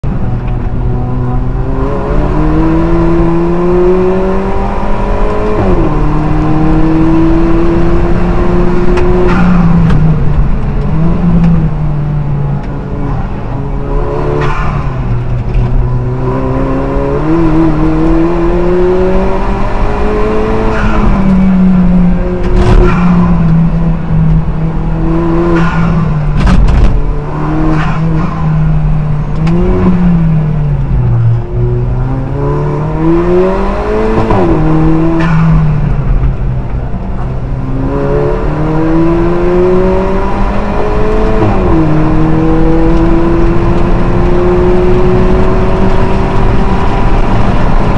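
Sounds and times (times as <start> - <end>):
race car engine revving: 0.1 - 47.9.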